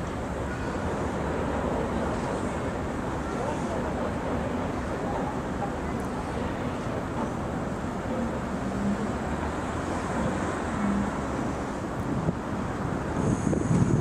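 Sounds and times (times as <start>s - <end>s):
outdoor traffic: 0.0s - 14.0s
railway noise: 0.0s - 14.0s.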